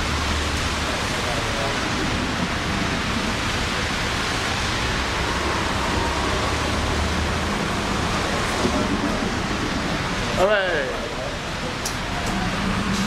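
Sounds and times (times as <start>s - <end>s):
traffic hiss on wet pavement: 0.0s - 13.0s.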